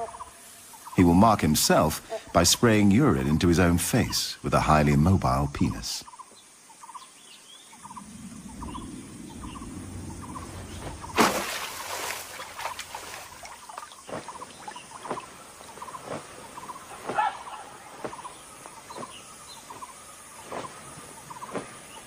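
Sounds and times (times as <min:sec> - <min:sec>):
small chirping calls: 0:06.0 - 0:22.0
low rumble: 0:07.8 - 0:11.3.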